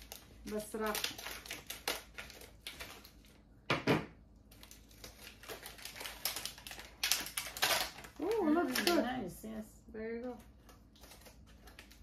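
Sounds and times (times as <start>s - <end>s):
plastic packaging crinkling: 0.0s - 3.5s, 4.4s - 9.4s, 10.2s - 12.0s.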